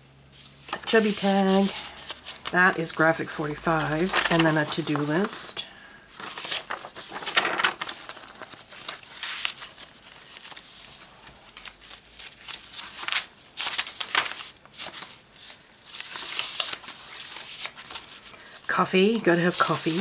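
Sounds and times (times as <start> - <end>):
paper pages rustling and flapping: 0.4 - 20.0.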